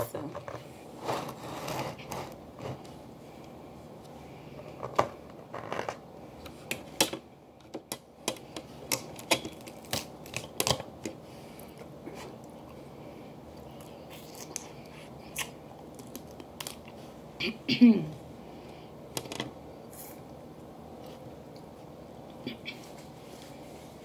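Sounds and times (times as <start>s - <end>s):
crab shell cracking: 7.9s - 11.2s.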